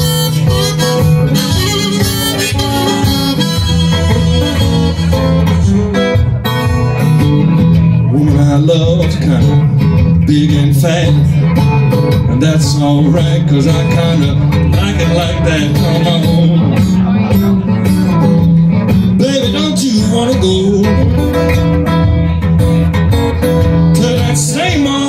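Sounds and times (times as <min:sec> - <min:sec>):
harmonica: 0:00.0 - 0:06.0
acoustic guitar: 0:00.0 - 0:25.0.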